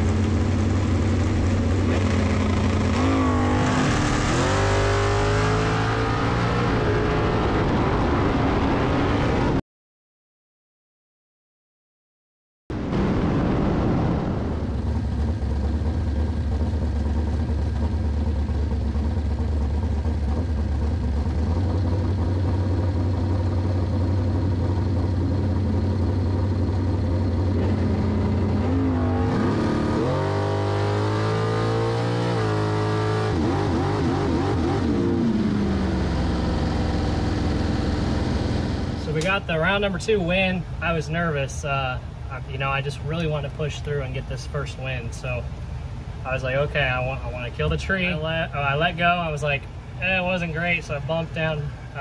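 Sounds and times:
dragster engine idling loudly: 14.8s - 27.7s.

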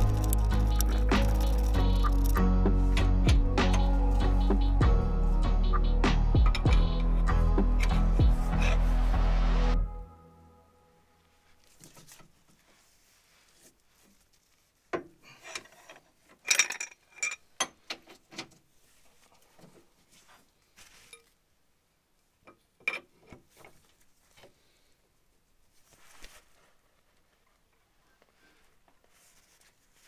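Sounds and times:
metal socket tools clinking: 0.0s - 2.4s.

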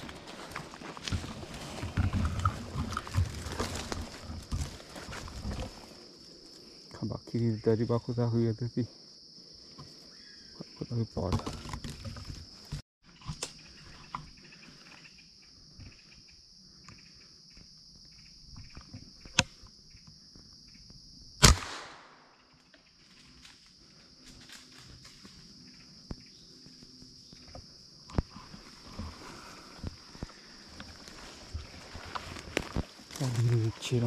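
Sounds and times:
insects droning: 0.0s - 34.0s
gunshot: 21.4s - 22.3s.

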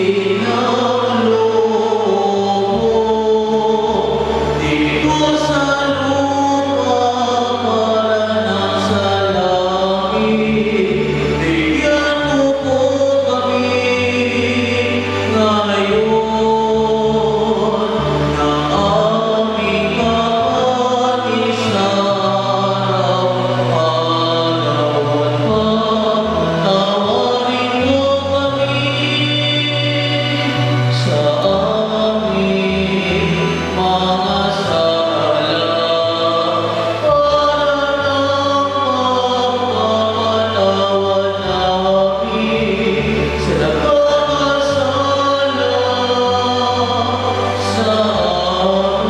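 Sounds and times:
choir and congregation singing: 0.0s - 49.0s.

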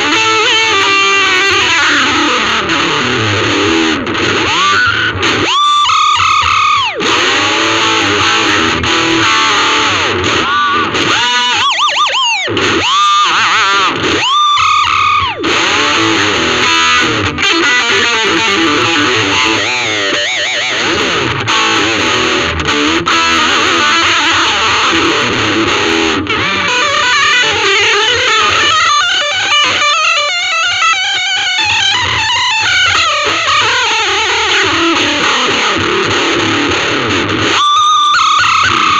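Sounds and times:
electric guitar lead lines: 0.0s - 38.9s.

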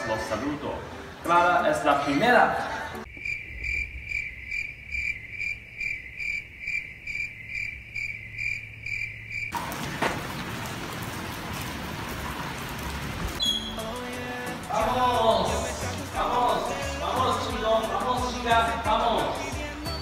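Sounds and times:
cricket chirping: 3.0s - 9.6s.

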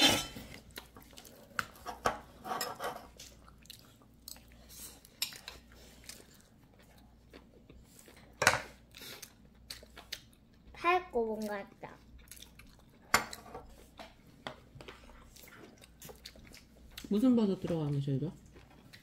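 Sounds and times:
child chewing: 0.0s - 17.1s, 18.4s - 19.0s
spoon scraping a bowl: 1.8s - 3.1s.

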